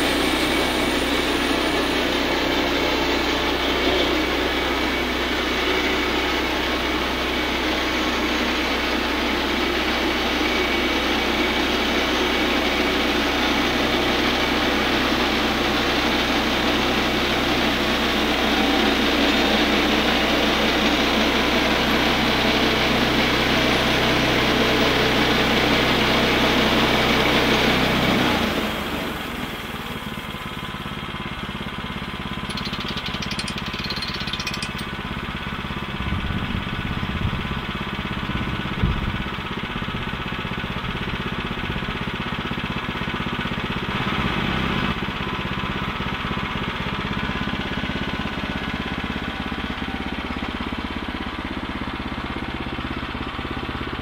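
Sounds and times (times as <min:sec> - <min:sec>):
bandsaw mill sawing log: 0:00.0 - 0:28.2.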